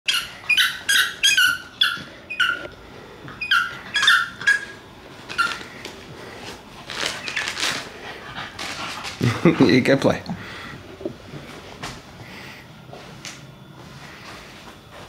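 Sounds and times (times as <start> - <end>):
puppy whining and yipping: 0.1 - 2.7, 3.4 - 5.7.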